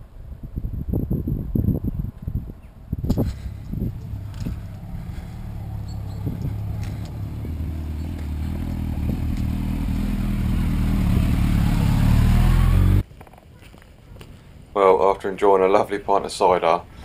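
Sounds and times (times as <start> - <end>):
motorcycle engine running: 3.1 - 13.0.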